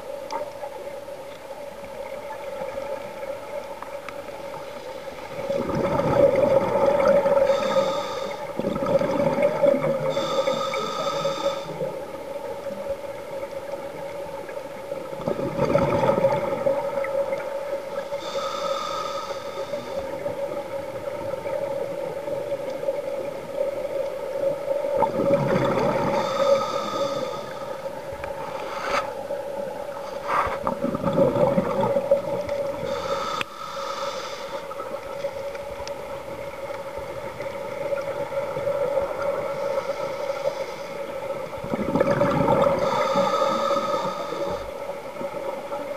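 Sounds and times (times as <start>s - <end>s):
exhaled bubbles rushing: 5.3s - 7.5s, 8.6s - 10.1s, 15.2s - 17.1s, 25.0s - 26.2s, 30.6s - 32.8s, 41.6s - 43.0s
regulator inhalation hiss: 7.3s - 8.6s, 10.0s - 12.0s, 18.0s - 20.3s, 26.1s - 29.2s, 32.8s - 35.0s, 39.4s - 41.2s, 42.8s - 44.9s.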